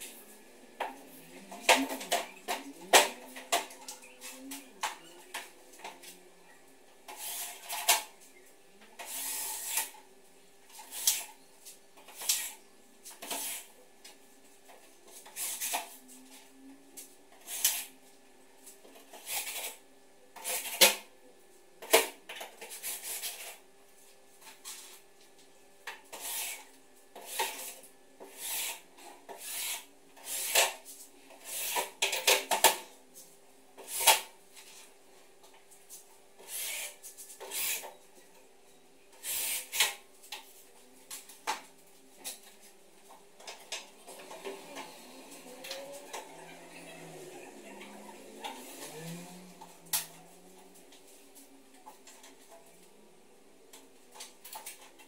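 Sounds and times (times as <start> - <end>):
faint steady hum: 0.0 - 55.0.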